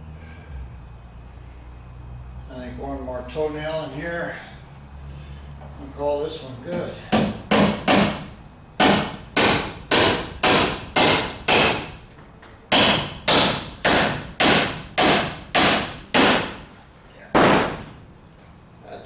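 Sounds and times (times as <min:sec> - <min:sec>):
hammer blows on wood: 0:06.7 - 0:12.0.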